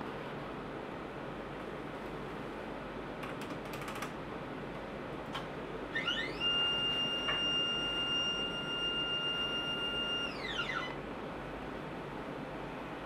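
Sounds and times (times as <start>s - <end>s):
electric motor whine: 6.0s - 11.0s.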